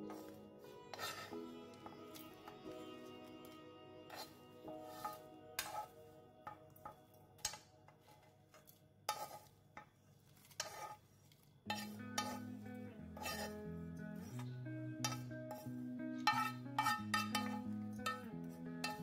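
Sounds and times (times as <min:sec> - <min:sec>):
soft background music: 0:00.0 - 0:09.5, 0:11.7 - 0:19.0
metal spoon clinking on metal: 0:11.7 - 0:12.6, 0:15.0 - 0:19.0.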